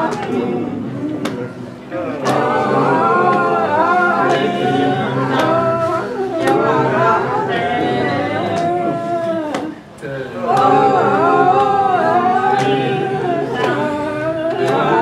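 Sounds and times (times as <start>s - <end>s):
group singing a worship song: 0.0s - 15.0s.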